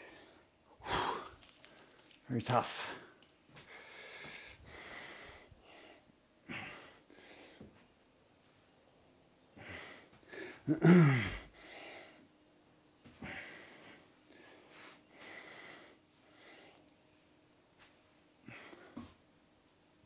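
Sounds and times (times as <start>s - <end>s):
man groaning: 10.7s - 11.4s.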